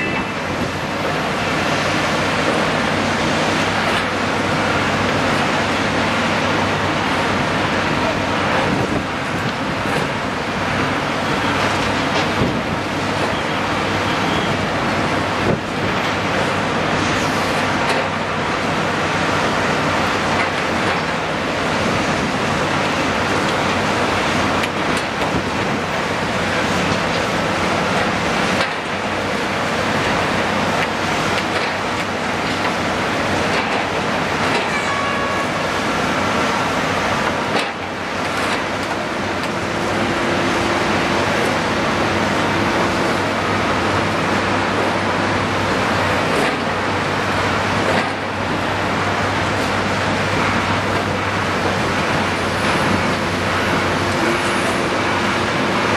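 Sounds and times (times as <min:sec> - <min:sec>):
city traffic noise: 0:00.0 - 0:55.9
excavator diesel engine running: 0:00.0 - 0:55.9
steady rushing noise: 0:35.5 - 0:55.9.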